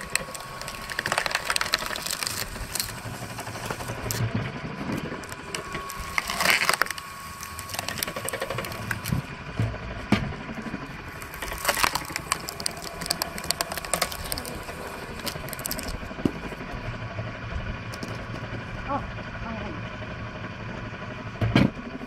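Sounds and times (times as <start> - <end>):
wood cracking and splintering: 0.0 - 9.3, 11.1 - 16.4
log splitter boring into wood: 0.0 - 18.7.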